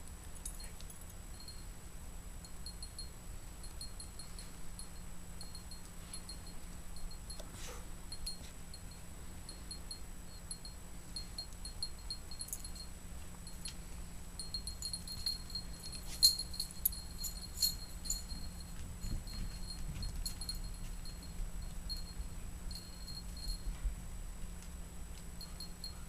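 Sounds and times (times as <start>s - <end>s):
dog collar tags jingling: 14.4s - 23.7s.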